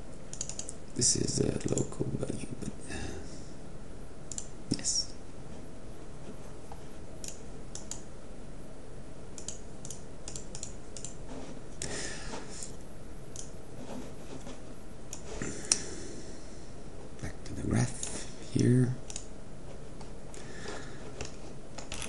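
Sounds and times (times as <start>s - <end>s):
background noise: 0.0s - 22.0s
keyboard keystrokes: 0.3s - 0.8s, 9.4s - 11.2s
mouse clicks: 7.2s - 8.1s, 9.4s - 11.2s.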